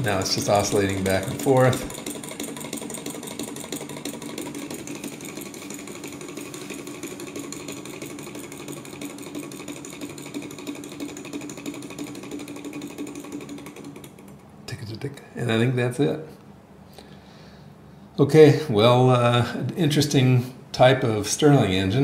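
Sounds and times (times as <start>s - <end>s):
stirling engine ticking: 0.0s - 14.4s
steady hum: 0.0s - 22.0s.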